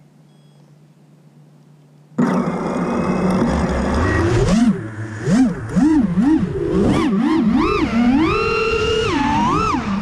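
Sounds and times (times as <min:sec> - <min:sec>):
drone motors whining: 0:02.2 - 0:10.0.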